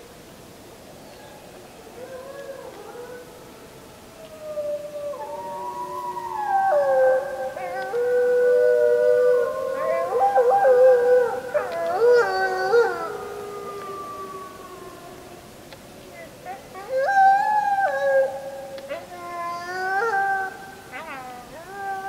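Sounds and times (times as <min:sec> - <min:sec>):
wolves howling in chorus: 0:01.2 - 0:15.6, 0:16.4 - 0:22.0
wolves yipping: 0:09.4 - 0:13.3.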